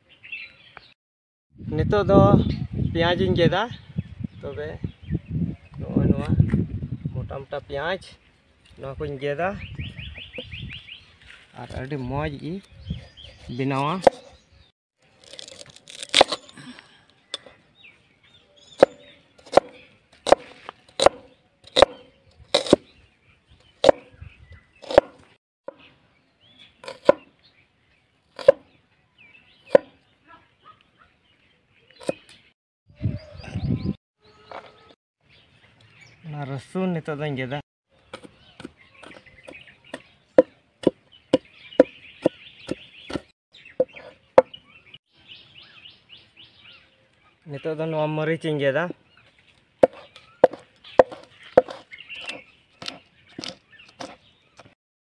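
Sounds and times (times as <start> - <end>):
knife chopping on wooden board: 13.4 - 14.3, 18.8 - 22.8, 23.8 - 24.1, 24.8 - 25.2, 26.8 - 27.3, 28.4 - 28.6, 29.7 - 30.0, 32.0 - 32.2, 49.8 - 54.7.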